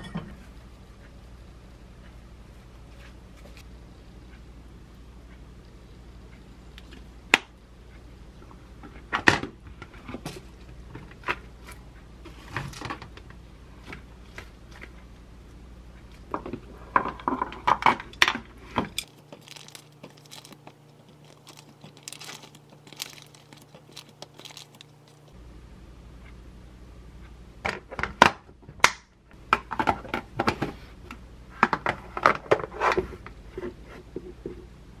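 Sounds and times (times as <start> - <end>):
cabbage crinkling in plastic box: 19.0 - 25.3.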